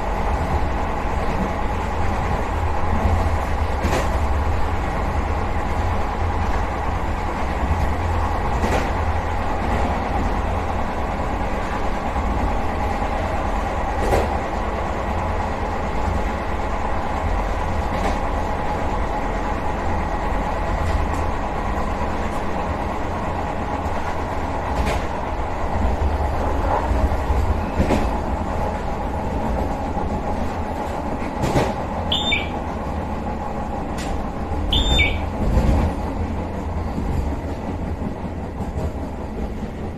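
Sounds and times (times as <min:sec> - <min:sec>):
train running low rumble: 0:00.0 - 0:39.9
short high beeps: 0:32.1 - 0:32.6, 0:34.7 - 0:35.3.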